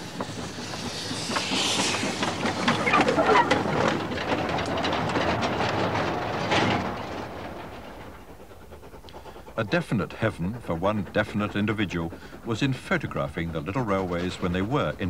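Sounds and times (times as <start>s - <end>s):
steam hissing: 0.0s - 4.6s, 7.6s - 15.0s
steam locomotive moving: 0.0s - 15.0s
wagons clanking and rattling: 2.5s - 8.4s.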